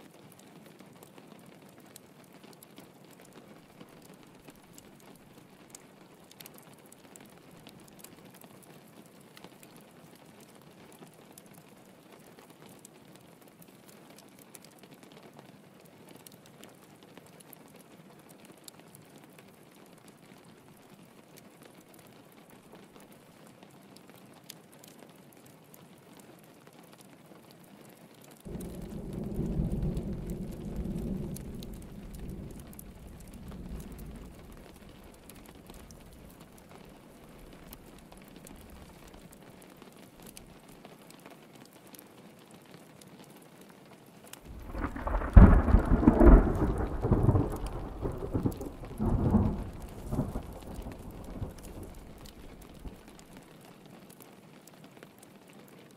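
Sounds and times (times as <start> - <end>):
rain pattering on a window: 0.0 - 55.9
thunder rolling: 28.5 - 36.3, 44.5 - 53.0
thunder peal with sharp cracks: 28.5 - 36.4, 44.5 - 53.1.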